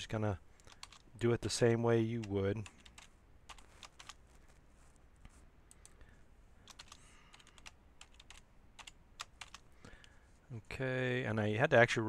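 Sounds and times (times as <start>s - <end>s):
computer keyboard typing: 0.6s - 1.1s, 2.2s - 4.2s, 6.6s - 9.7s.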